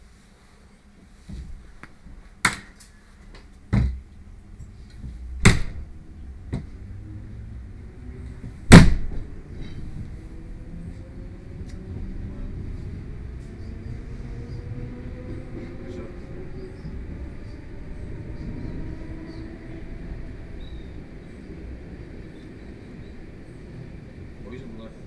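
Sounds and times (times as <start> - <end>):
electric train drive whine: 3.3 - 25.0
train doors banging shut: 5.4 - 5.8, 8.4 - 9.7.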